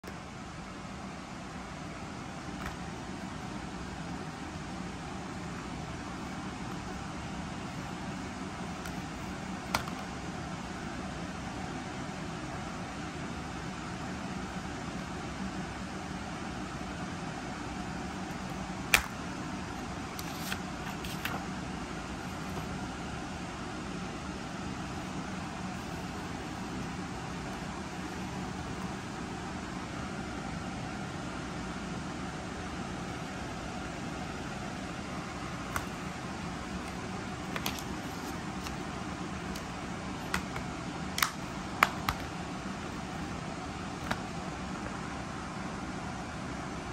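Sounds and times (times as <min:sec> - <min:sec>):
low room hum: 0:00.0 - 0:46.9
plastic case clicks and taps: 0:09.7 - 0:10.0, 0:40.3 - 0:42.3
plastic case snapping open: 0:18.9 - 0:19.2, 0:36.9 - 0:38.8, 0:40.3 - 0:42.3
light clicks of handled inserts: 0:36.8 - 0:38.8.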